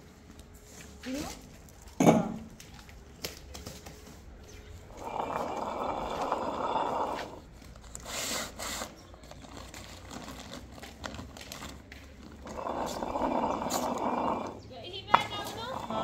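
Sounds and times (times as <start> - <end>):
stone quern grinding: 4.9 - 7.6, 12.2 - 16.0.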